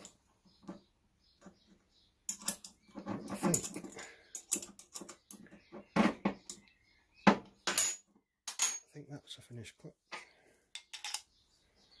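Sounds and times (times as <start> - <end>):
metal bolts clicking and scraping: 2.3 - 5.4, 10.8 - 11.3.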